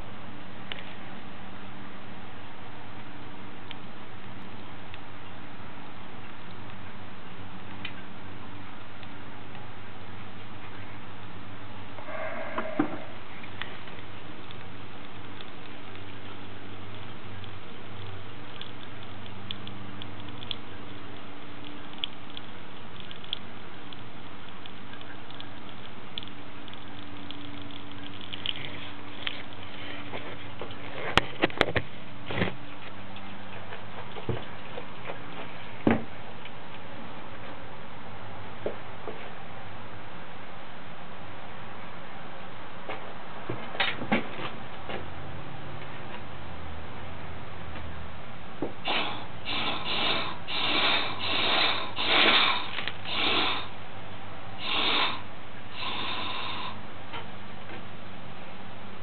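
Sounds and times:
scattered ticks: 0:13.4 - 0:31.5.

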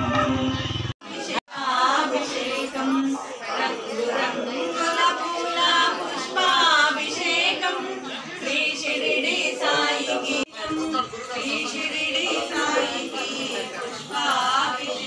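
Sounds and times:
voices singing devotional song: 0:00.0 - 0:15.0.

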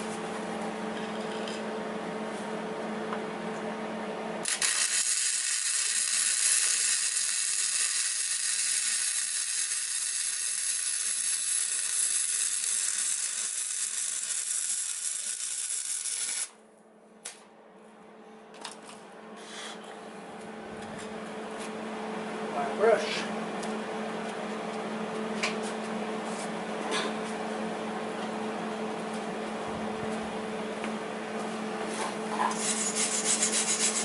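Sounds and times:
welder crackling sizzle: 0:04.4 - 0:16.6.

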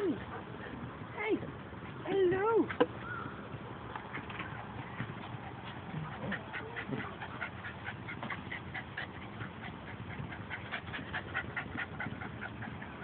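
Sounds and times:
dog panting rapidly: 0:04.1 - 0:13.0.

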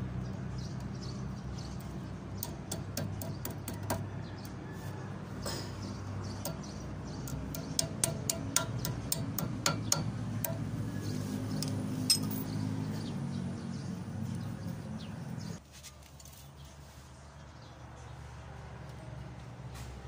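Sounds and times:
metal clicks and clinks: 0:11.5 - 0:12.6.

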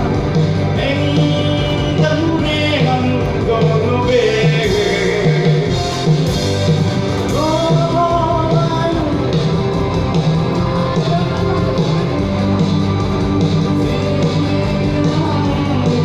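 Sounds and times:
amplified instrumental music with beat: 0:00.0 - 0:16.0
man singing into a microphone: 0:00.7 - 0:05.8, 0:07.3 - 0:09.4.

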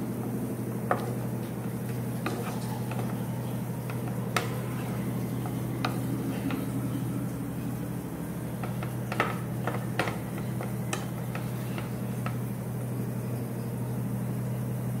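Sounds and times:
steady low hum: 0:00.0 - 0:15.0
spatula scraping a pan: 0:01.9 - 0:06.8.

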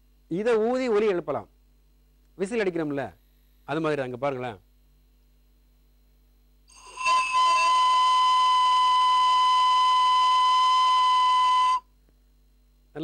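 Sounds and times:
breathy whistle across a tube: 0:06.7 - 0:11.9.

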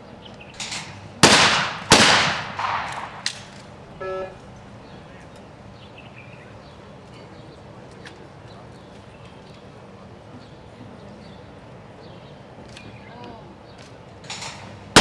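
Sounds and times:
shotgun shots echoing: 0:00.7 - 0:03.5, 0:14.4 - 0:15.0
short tone: 0:04.0 - 0:04.4.

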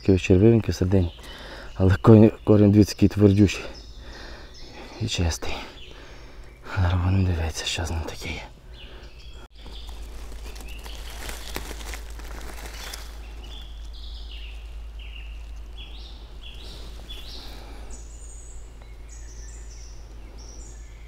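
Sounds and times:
dry leaves rustling and crackling: 0:09.5 - 0:17.9.

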